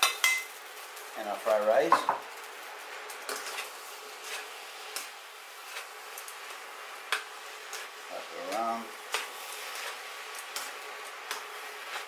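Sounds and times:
food sizzling: 0.0s - 12.0s
metal tongs clicking on a pan: 11.3s - 11.5s.

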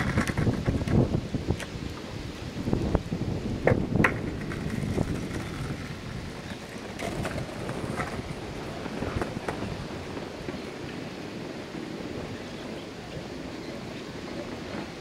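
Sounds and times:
skateboard clacking on concrete: 0.0s - 1.8s, 3.6s - 10.6s
wind buffeting microphone: 0.0s - 15.0s.

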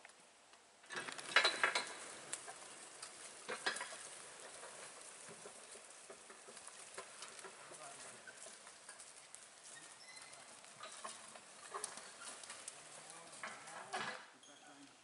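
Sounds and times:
hooves crunching twigs and bark: 1.2s - 13.8s.

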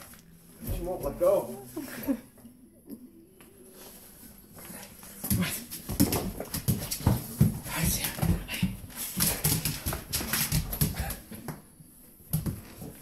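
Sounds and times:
dog paws scrabbling: 4.6s - 11.6s.

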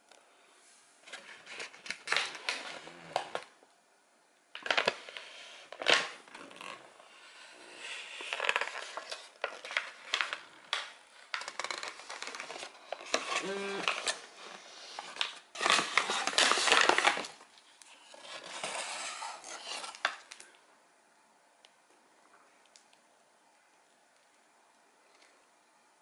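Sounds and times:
paper bag crinkling: 4.6s - 20.5s.

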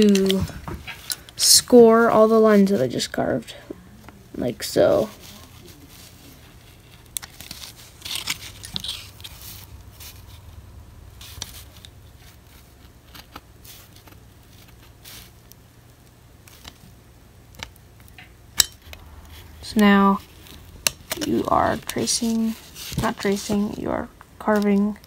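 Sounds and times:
knife scratching wood: 7.2s - 10.4s.

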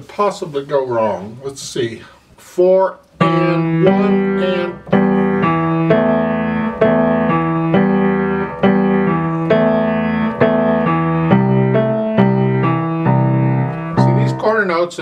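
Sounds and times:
slow grand piano melody: 3.2s - 14.8s.

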